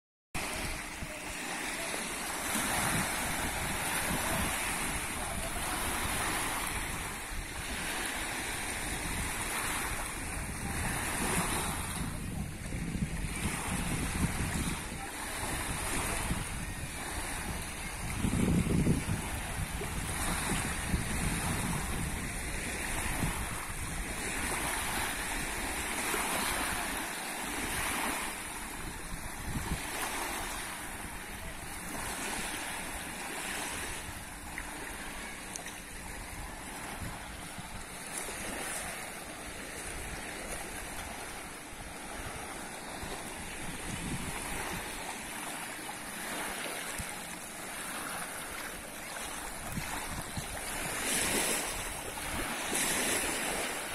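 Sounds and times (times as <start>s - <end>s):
small waves lapping on shore: 0.4s - 53.9s
wind rumble on microphone: 2.2s - 53.9s.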